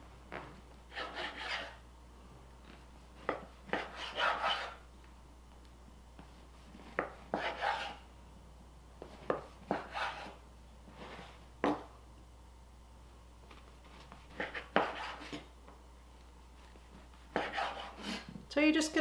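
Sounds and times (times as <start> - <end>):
knife rasping through bread: 0.9 - 1.8, 3.3 - 4.8, 6.5 - 8.0, 9.3 - 10.4, 14.1 - 15.4, 17.1 - 18.3.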